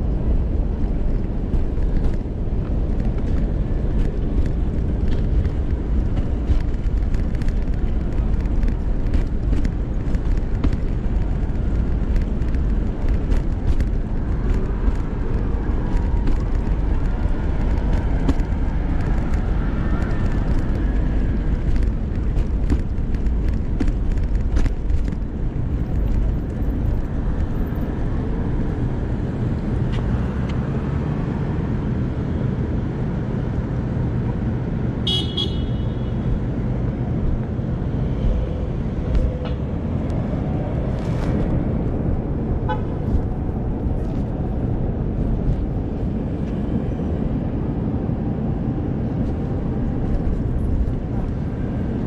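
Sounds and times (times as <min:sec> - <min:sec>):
stroller wheels rumbling on pavement: 0:00.0 - 0:32.6, 0:33.2 - 0:52.0
wheel clicks and rattles: 0:00.1 - 0:28.6.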